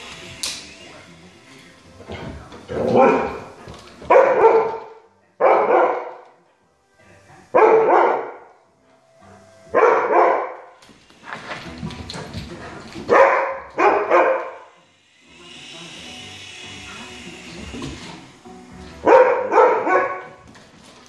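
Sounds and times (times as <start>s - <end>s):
dog barking: 4.1s - 6.2s, 7.6s - 8.5s, 9.8s - 10.7s, 13.1s - 14.7s, 19.0s - 20.4s.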